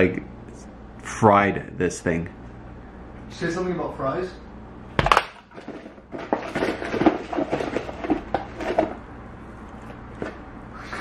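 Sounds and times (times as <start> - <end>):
fries clicking and rustling: 5.0 - 9.0.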